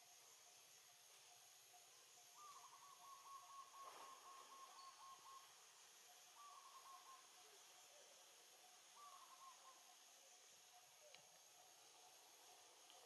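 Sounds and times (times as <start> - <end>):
faint high hiss: 0.0 - 13.0
bird calling: 2.4 - 5.6, 6.2 - 11.8.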